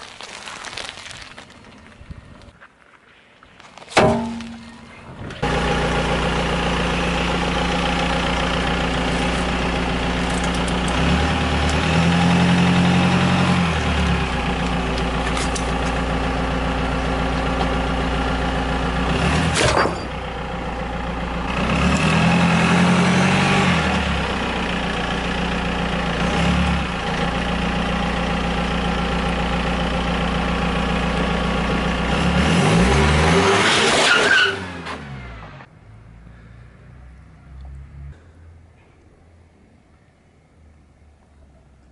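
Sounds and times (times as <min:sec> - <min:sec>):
ice cracking under tyre: 0:00.0 - 0:04.8, 0:08.8 - 0:11.0
car engine revving: 0:05.4 - 0:16.4, 0:21.4 - 0:24.4, 0:32.0 - 0:35.7.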